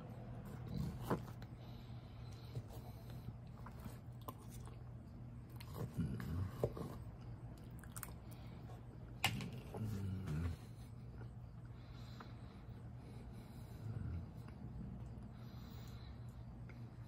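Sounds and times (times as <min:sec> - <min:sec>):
low steady hum: 0:00.0 - 0:17.0
person chewing food: 0:02.2 - 0:11.8.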